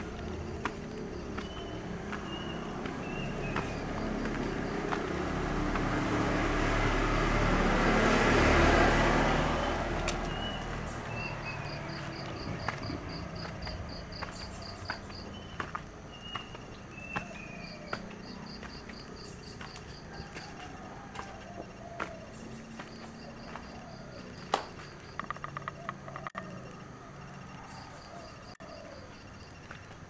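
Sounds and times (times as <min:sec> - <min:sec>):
vehicle passing: 0:00.0 - 0:28.6
insect chirping in rapid pulses: 0:08.4 - 0:29.7.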